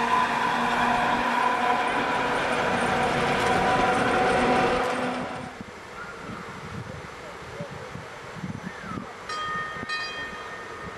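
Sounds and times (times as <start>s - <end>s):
tram wheels on rails: 0.0s - 5.7s
tram whine: 0.0s - 5.7s.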